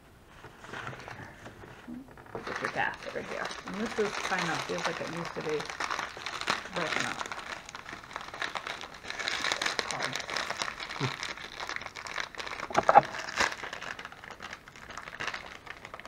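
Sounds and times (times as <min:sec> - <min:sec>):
packet crinkling: 0:02.1 - 0:16.0.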